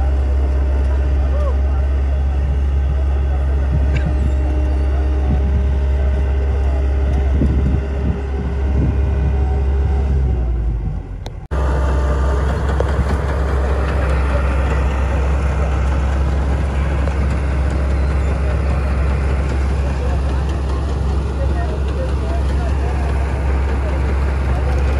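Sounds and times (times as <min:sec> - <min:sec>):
heavy engine humming: 0:00.0 - 0:24.9.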